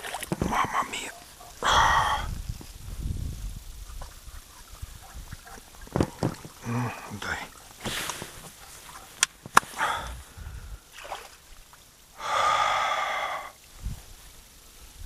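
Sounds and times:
person exhaling loudly: 1.6s - 2.4s, 9.7s - 10.8s, 12.2s - 13.6s
short breath: 9.7s - 10.9s, 12.2s - 13.6s.

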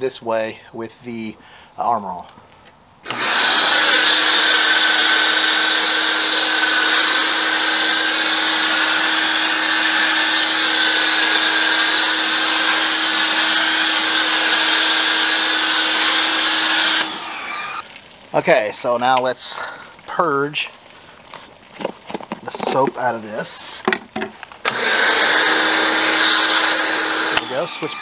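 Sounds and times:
motor hum: 3.0s - 17.9s
pressure washer spray hiss: 6.2s - 17.7s.

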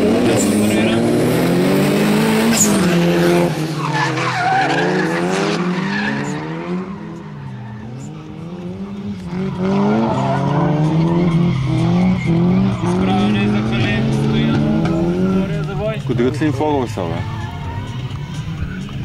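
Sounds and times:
car engines revving: 0.0s - 19.0s
tyres squealing and skidding: 2.1s - 19.0s.

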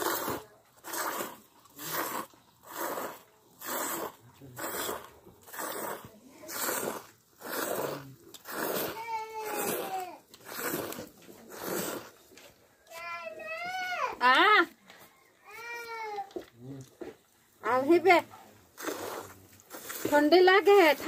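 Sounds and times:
milk squirting into steel bowl: 0.0s - 12.6s, 18.0s - 21.0s.

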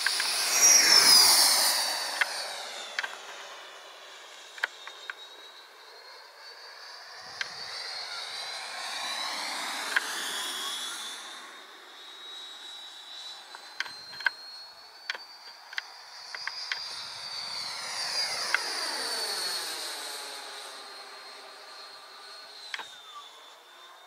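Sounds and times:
sharp clicks: 0.0s - 0.4s, 2.2s - 3.2s
model jet fan whine: 0.0s - 24.0s.

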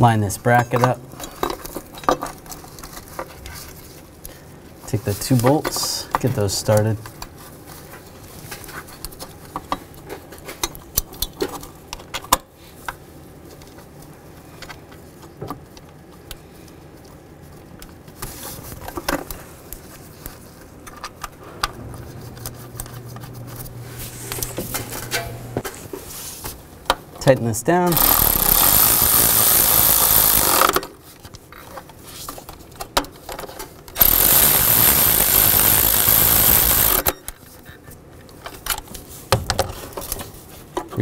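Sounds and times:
low steady hum: 21.2s - 27.7s.

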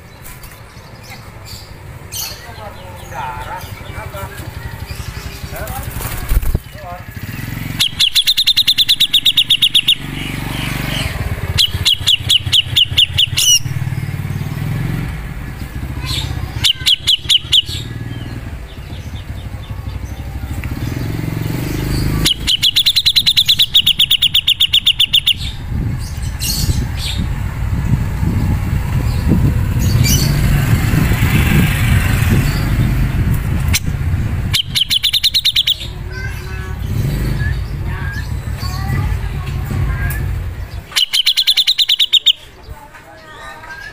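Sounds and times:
bird chattering song: 0.0s - 43.9s
steady low rumble: 25.2s - 35.0s, 35.8s - 41.0s.

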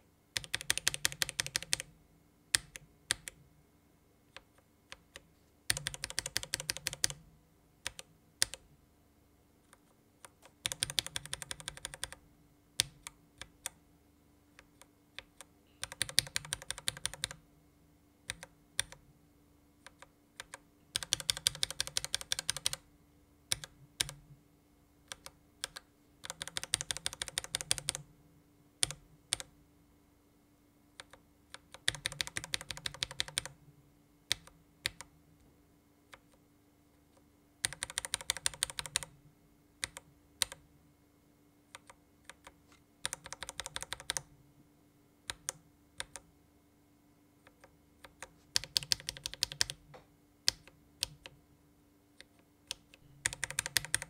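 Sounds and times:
keyboard keystrokes: 0.4s - 1.9s, 4.3s - 7.2s, 7.8s - 8.6s, 10.2s - 12.2s, 14.7s - 17.4s, 18.3s - 19.0s, 19.9s - 22.8s, 25.1s - 28.0s, 31.0s - 33.5s, 37.6s - 39.1s, 41.8s - 44.3s, 45.3s - 46.2s, 47.5s - 49.8s, 52.2s - 54.0s
rapid keyboard tapping: 0.4s - 1.9s, 5.7s - 7.2s, 10.4s - 12.2s, 15.8s - 17.4s, 19.9s - 22.8s, 25.1s - 28.0s, 31.0s - 33.5s, 37.6s - 39.1s, 41.8s - 44.2s, 47.5s - 49.8s, 52.7s - 54.0s.

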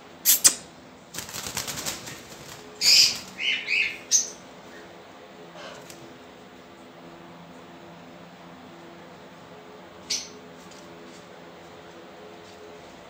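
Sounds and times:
parakeets flapping wings: 1.1s - 3.6s
parakeets harsh calls: 2.8s - 4.4s.

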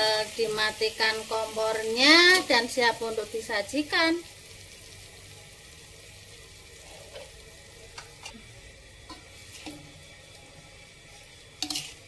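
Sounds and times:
sauce sizzling in a wok: 0.0s - 12.0s
spatula scraping a pan: 6.8s - 7.4s, 9.0s - 12.0s.

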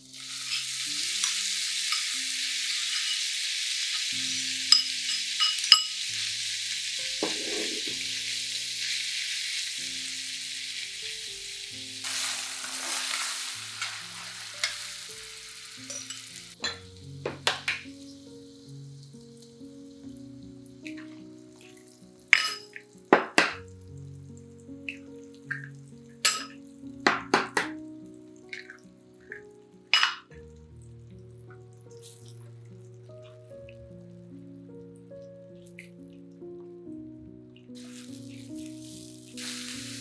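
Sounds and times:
meat sizzling in a frying pan: 0.0s - 27.0s, 37.7s - 40.0s
metal spoon scraping a pan: 2.7s - 3.3s, 7.2s - 8.0s, 12.7s - 14.9s, 15.9s - 16.8s.

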